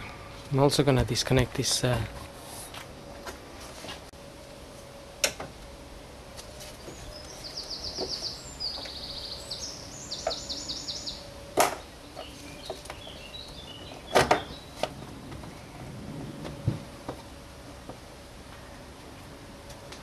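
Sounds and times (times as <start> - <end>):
songbird trilling: 6.8 - 14.8.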